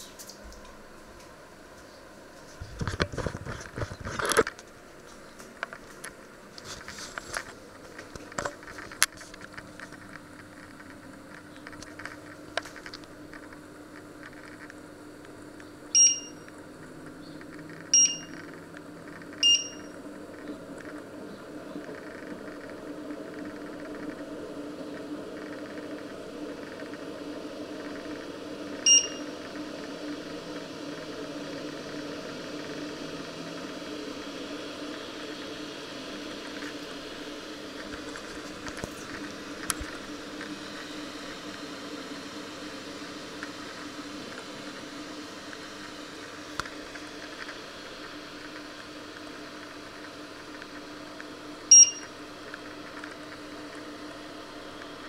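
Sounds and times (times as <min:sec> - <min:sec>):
steady low hum: 0:00.0 - 0:55.0
short high beeps: 0:16.0 - 0:16.4, 0:18.0 - 0:18.4, 0:19.4 - 0:19.9, 0:28.9 - 0:29.2, 0:51.7 - 0:52.1.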